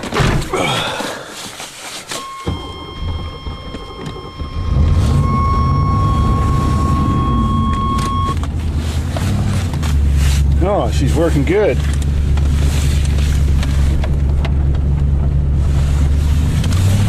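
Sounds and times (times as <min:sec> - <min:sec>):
high electronic warning tone: 0:02.2 - 0:08.4
car engine starting and revving: 0:02.2 - 0:17.0.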